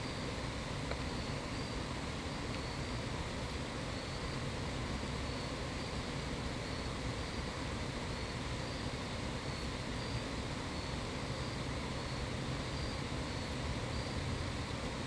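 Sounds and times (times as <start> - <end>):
insect chirps: 0.0 - 15.0.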